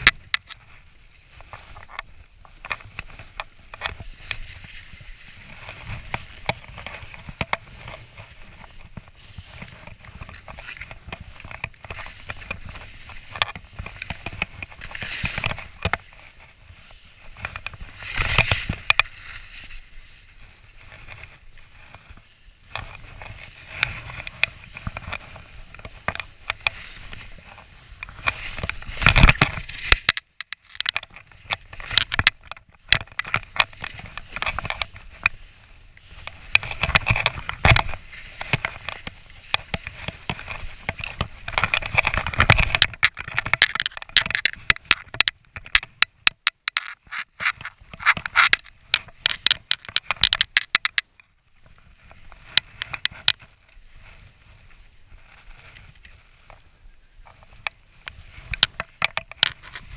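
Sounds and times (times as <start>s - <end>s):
sharp clicks and knocks: 0.0s - 19.8s, 21.9s - 35.4s, 36.0s - 51.3s, 52.0s - 53.5s, 57.3s - 59.9s
skis hissing through powder snow: 4.0s - 6.1s.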